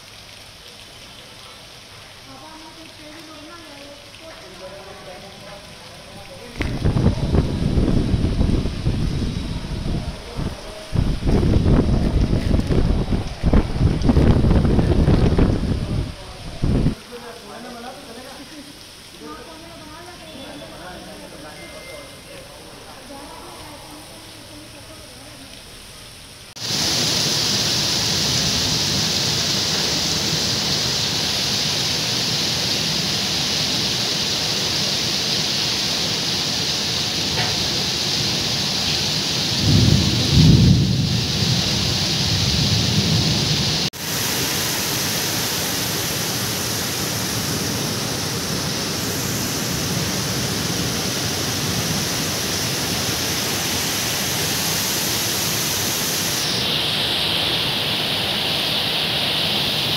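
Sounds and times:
heavy rain: 0.0s - 59.9s
thunder rumble: 6.6s - 17.0s, 39.5s - 44.0s.

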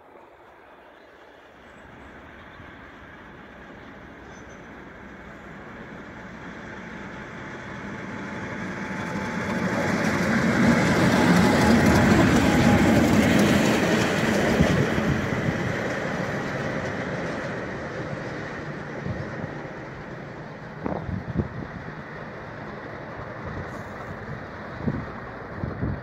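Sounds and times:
diesel locomotive passing by: 0.0s - 26.0s.

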